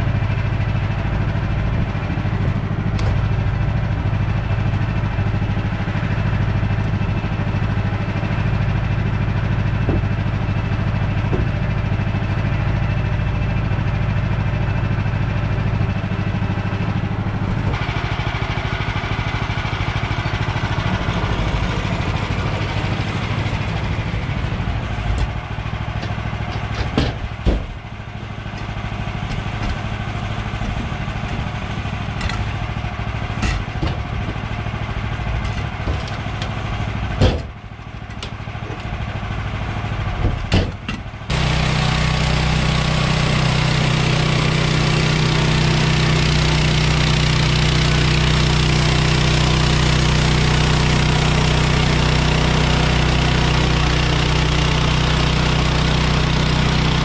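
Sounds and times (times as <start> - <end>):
gas engine idling: 0.0 - 57.0
knocks and clunks: 9.7 - 10.4, 11.2 - 11.7, 24.8 - 32.7, 33.3 - 34.6, 35.3 - 38.9, 40.1 - 41.1
band saw cutting log: 17.6 - 39.1, 40.3 - 57.0.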